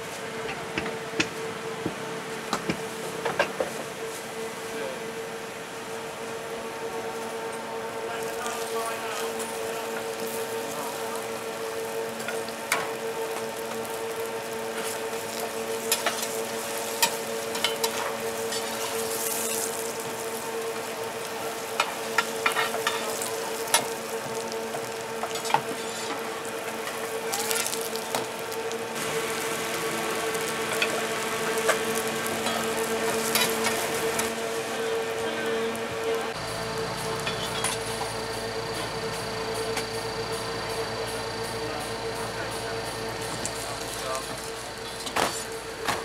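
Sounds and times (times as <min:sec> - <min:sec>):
steady hum: 0:00.0 - 0:46.0
pancake sizzling in a pan: 0:08.1 - 0:45.8
crackles and pops: 0:22.1 - 0:34.3.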